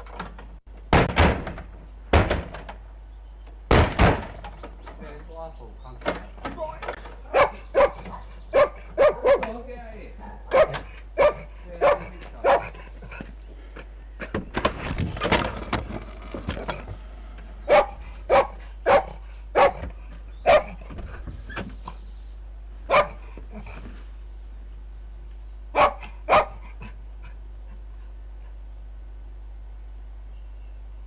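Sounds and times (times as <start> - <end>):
steady low hum: 0.0 - 31.0
dog barking: 7.3 - 9.5, 10.2 - 12.8, 17.7 - 20.8, 22.9 - 23.2, 25.8 - 26.7.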